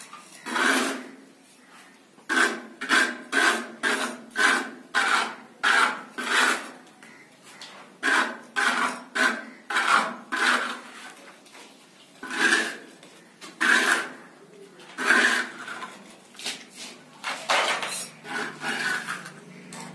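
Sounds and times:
hand tool scraping plaster: 0.3 - 1.2, 2.3 - 6.8, 8.0 - 11.3, 12.2 - 14.2, 14.8 - 19.9.

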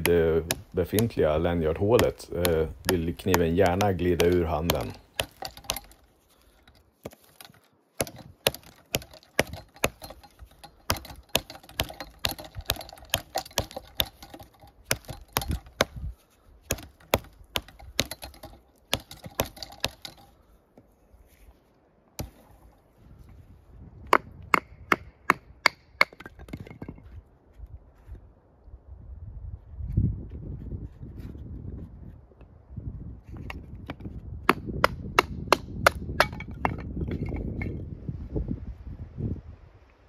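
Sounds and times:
sharp wooden knocks: 0.0 - 6.0, 6.6 - 20.3, 24.0 - 27.1, 33.5 - 37.7
knife chopping wood: 0.0 - 20.2, 22.2 - 22.6, 24.1 - 26.7, 33.9 - 36.8.

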